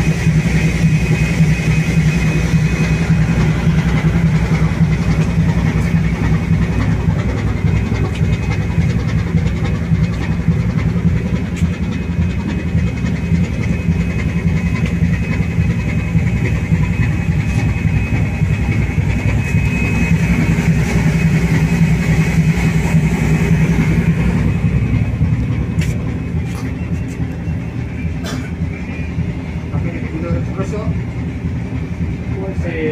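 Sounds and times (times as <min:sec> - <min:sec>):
ship engine droning: 0:00.0 - 0:32.9
faint high whine: 0:12.8 - 0:28.2.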